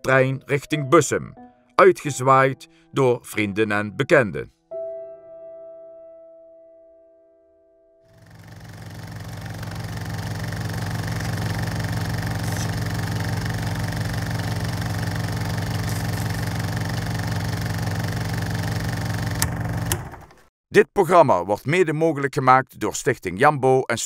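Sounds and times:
small motor running: 8.1 - 20.4.

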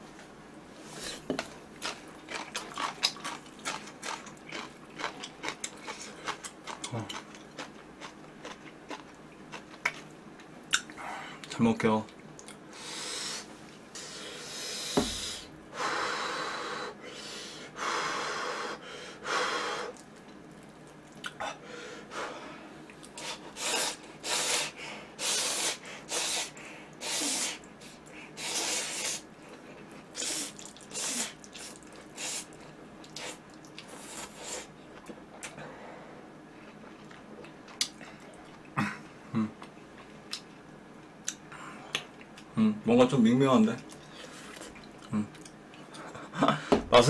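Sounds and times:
person slurping noodles: 23.2 - 27.6, 28.4 - 29.2, 30.2 - 32.5.

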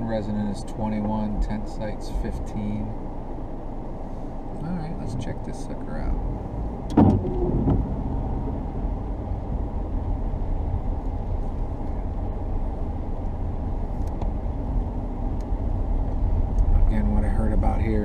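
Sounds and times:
vehicle driving on wet road: 6.0 - 18.0
sharp knock: 6.9 - 8.0.

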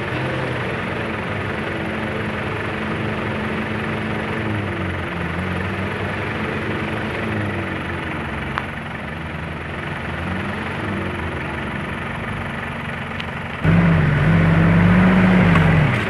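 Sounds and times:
truck engines running: 0.0 - 16.0
nearer engine revving high: 13.6 - 16.0.

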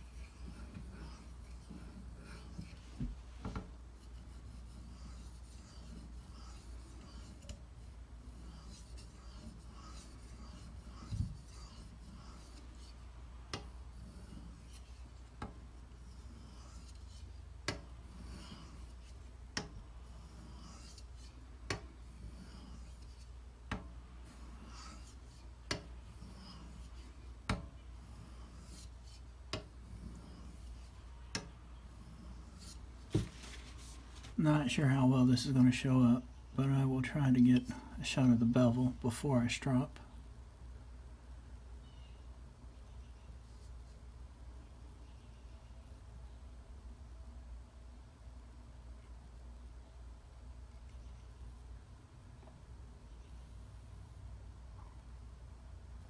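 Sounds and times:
knife scraping on whetstone: 0.0 - 34.0.

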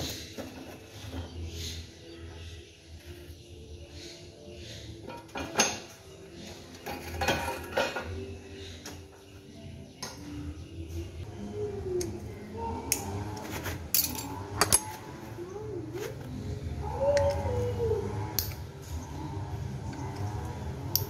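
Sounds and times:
metallic clinks of spanners: 13.9 - 14.9.

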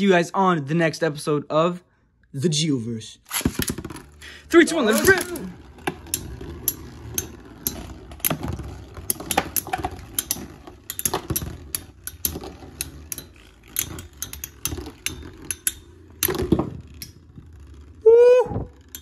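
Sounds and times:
spinning tops whirring: 3.3 - 19.0
metal tops colliding clicks: 4.8 - 8.4, 9.1 - 17.2.

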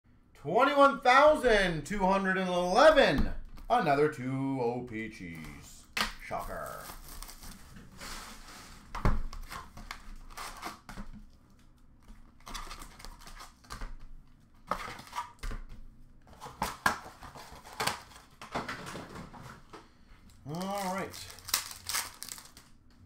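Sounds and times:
cardboard boxes rustling and scraping: 6.6 - 10.9.

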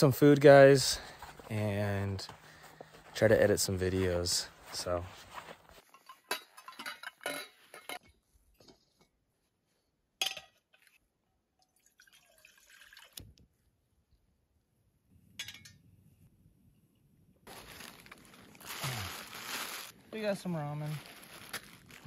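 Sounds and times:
metal pot and stove clinking: 5.9 - 8.0, 15.4 - 15.8
water poured into pot: 11.6 - 13.2.

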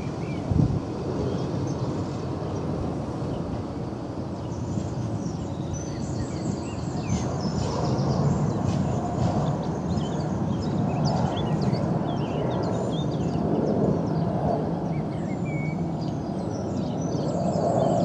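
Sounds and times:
small birds chirping: 4.3 - 18.0.

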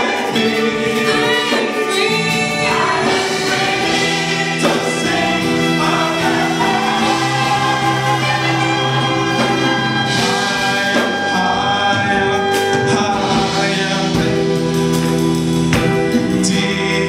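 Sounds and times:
sharp beats: 0.0 - 16.6
gospel choir singing: 0.0 - 17.0
man singing solo into microphone: 7.0 - 15.0, 16.3 - 17.0.

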